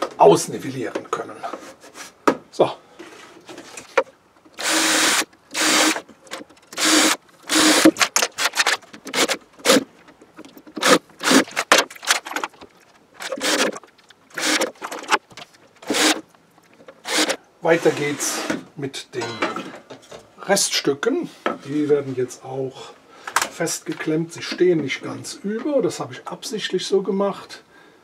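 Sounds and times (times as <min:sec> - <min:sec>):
cordless drill boring into wood: 0:04.6 - 0:06.0, 0:06.8 - 0:07.9, 0:13.2 - 0:13.8, 0:14.4 - 0:14.7, 0:15.8 - 0:16.2, 0:17.0 - 0:17.4.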